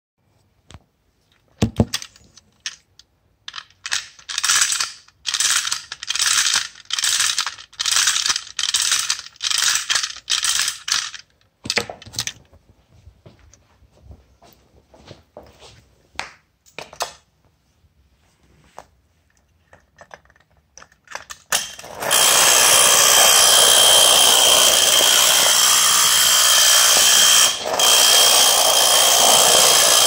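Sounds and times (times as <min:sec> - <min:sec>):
ratchet clicking of toy winding: 0:03.5 - 0:11.4, 0:21.1 - 0:30.0.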